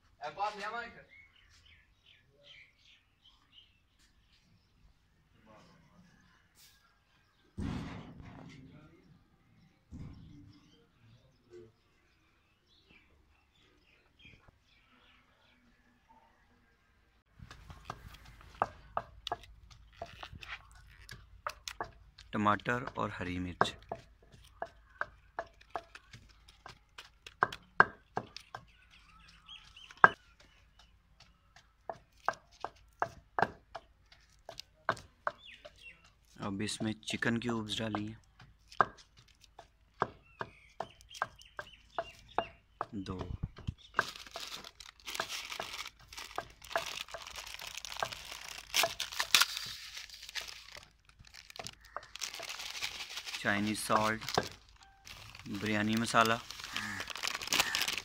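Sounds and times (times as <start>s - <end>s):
plastic sachet crinkling and tearing: 44.0s - 58.0s.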